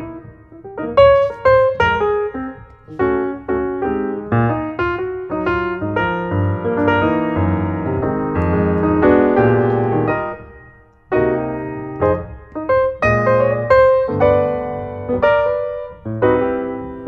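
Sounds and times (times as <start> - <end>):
solo piano playing: 0.0 - 17.0.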